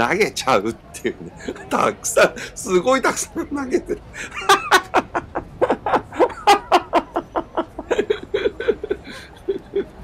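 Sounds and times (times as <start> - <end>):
person laughing hard: 4.2 - 10.0.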